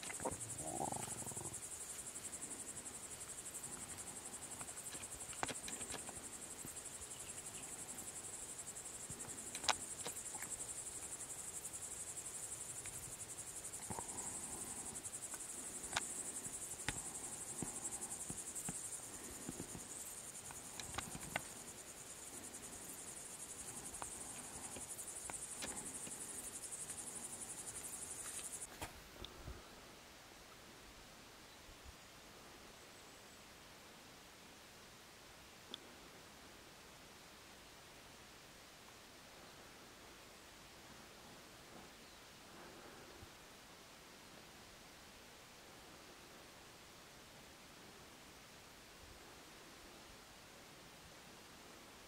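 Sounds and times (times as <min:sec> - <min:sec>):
crickets chirring: 0:00.0 - 0:28.7.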